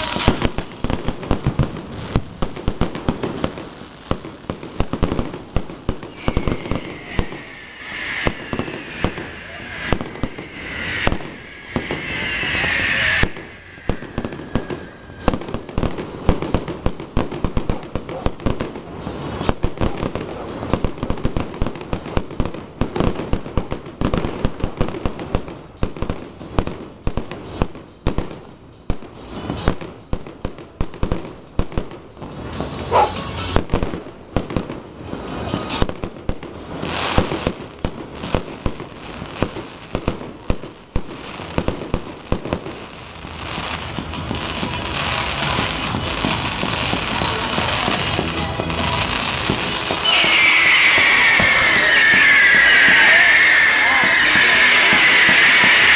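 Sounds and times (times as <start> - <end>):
firework whistle: 0.0 - 1.8, 4.9 - 17.8, 32.5 - 36.0, 36.7 - 42.8, 49.0 - 55.9
fireworks bangs and crackles: 0.0 - 55.9.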